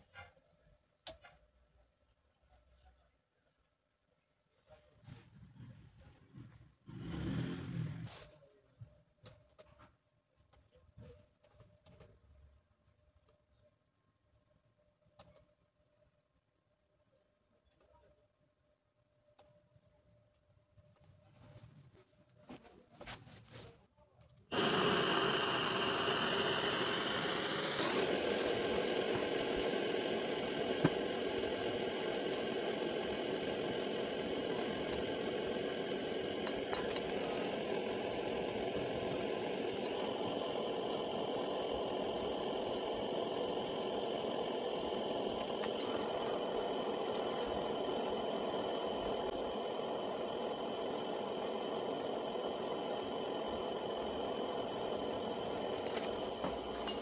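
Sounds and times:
gas torch hissing roar: 6.9 - 8.2, 24.5 - 57.0
torch click: 24.5 - 57.0.

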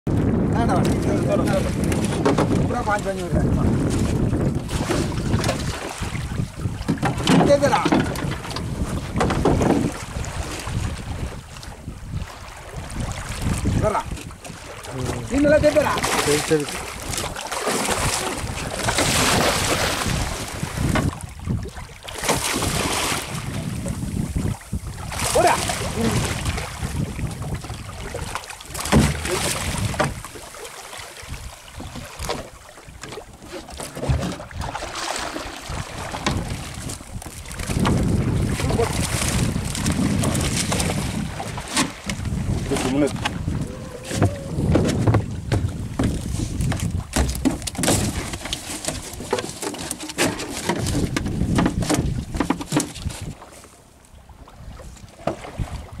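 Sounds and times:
wind on microphone: 0.1 - 30.5, 31.2 - 49.4, 50.3 - 53.6, 54.4 - 56.0
fish splashing in water: 4.7 - 8.4, 14.5 - 23.8, 24.4 - 33.3, 33.9 - 51.2
loud thumps: 44.1 - 48.1.

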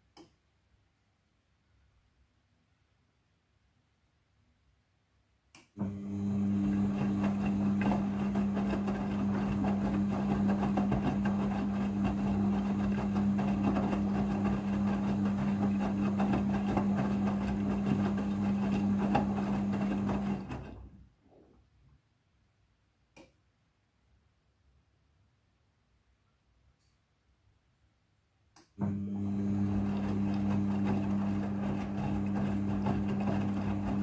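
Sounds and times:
washing machine drum humming: 5.8 - 21.0, 28.8 - 34.0
wet laundry tumbling: 6.3 - 21.0, 29.2 - 34.0.

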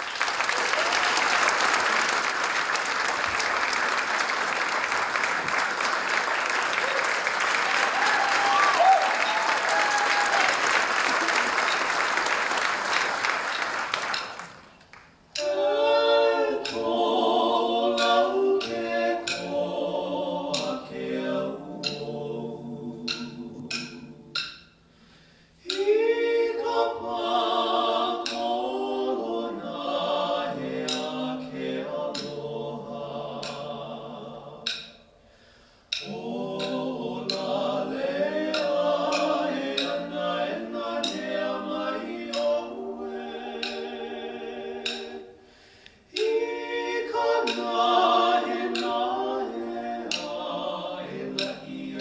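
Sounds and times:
audience applause: 0.0 - 15.0
male vocal trio singing harmony: 15.4 - 24.6, 25.6 - 35.0, 35.9 - 52.0.

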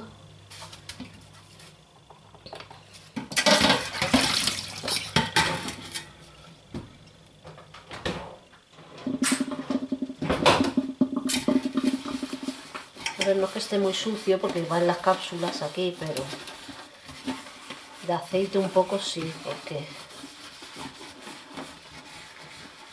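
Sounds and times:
water splashing and pouring: 3.4 - 5.2
metal knocking on metal: 9.0 - 12.6
sponge scrubbing metal tin: 9.0 - 22.9.

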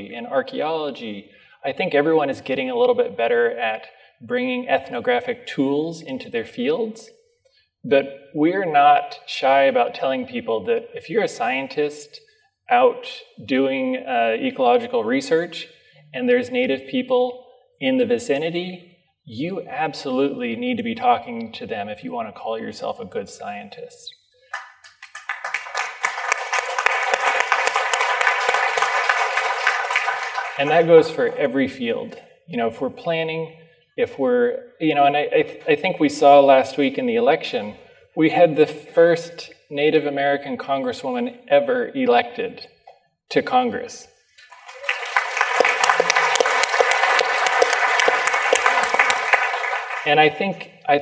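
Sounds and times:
audience applause: 24.5 - 31.4, 44.4 - 50.4.

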